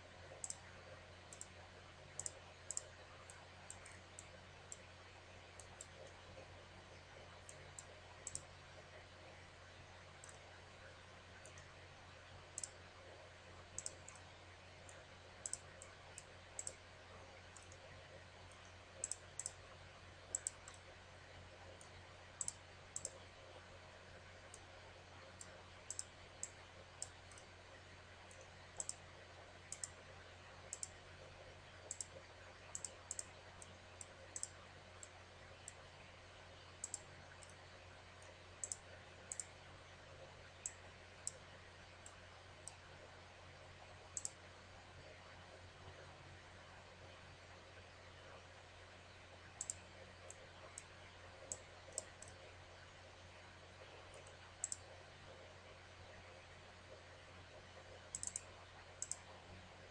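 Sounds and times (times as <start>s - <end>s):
faint low hum: 0.0s - 59.9s
computer mouse clicking: 0.4s - 0.7s, 1.3s - 4.9s, 5.6s - 6.3s, 7.4s - 8.6s, 10.2s - 10.5s, 11.4s - 11.7s, 12.5s - 12.8s, 13.7s - 16.8s, 17.5s - 17.9s, 18.5s - 19.6s, 20.3s - 20.9s, 21.7s - 23.2s, 25.4s - 27.5s, 28.3s - 29.0s, 29.7s - 30.0s, 30.6s - 31.0s, 31.8s - 35.8s, 36.8s - 37.6s, 38.2s - 39.5s, 40.6s - 42.8s, 44.2s - 44.4s, 49.6s - 52.5s, 54.1s - 55.4s, 58.1s - 59.3s.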